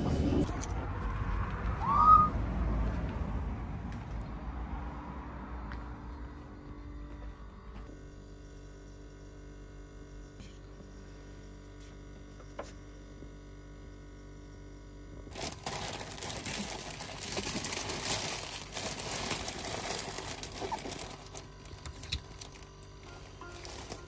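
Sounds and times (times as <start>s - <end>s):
cellophane and paper crinkling: 15.3s - 24.0s.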